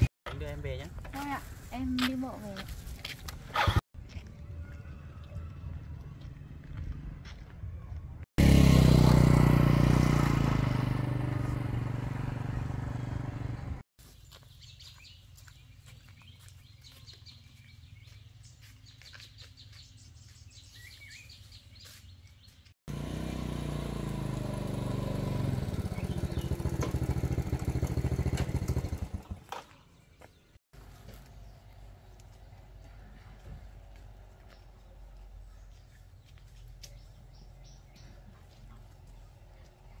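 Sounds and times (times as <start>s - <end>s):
small engine running: 8.4s - 13.8s, 22.9s - 29.7s.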